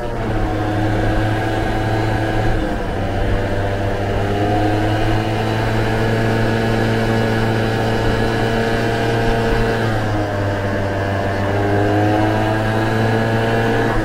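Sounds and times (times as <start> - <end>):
scooter engine running: 0.0 - 14.0.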